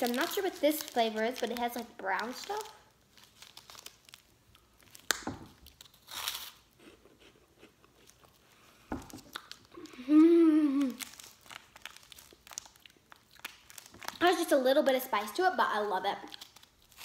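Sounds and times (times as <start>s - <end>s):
wrapper rustling: 0.0s - 6.7s, 10.7s - 14.6s, 16.2s - 17.0s
person chewing: 4.1s - 14.2s
person humming mmm: 9.7s - 11.1s.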